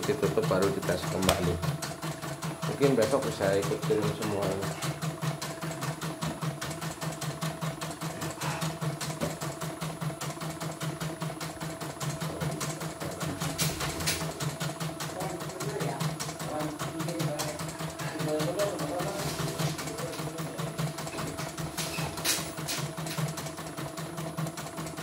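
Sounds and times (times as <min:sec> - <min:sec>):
embroidery machine motor hum: 0:00.0 - 0:25.0
embroidery needle ticking: 0:14.2 - 0:19.1.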